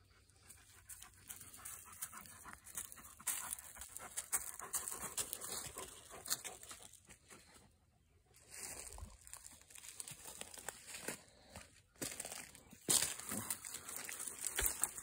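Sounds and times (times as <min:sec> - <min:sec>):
dog panting: 0:00.0 - 0:07.4.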